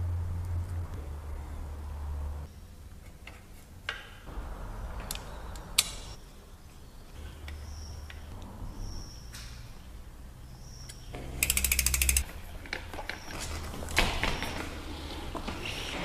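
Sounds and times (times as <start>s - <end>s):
sharp metallic clicks: 5.0s - 6.1s, 10.8s - 12.3s.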